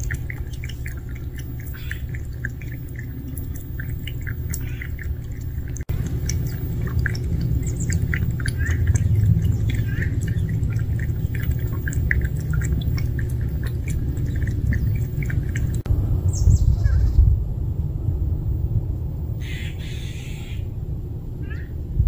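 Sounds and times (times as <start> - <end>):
cats lapping water: 0.0 - 15.9
steady low rumble: 0.0 - 22.0.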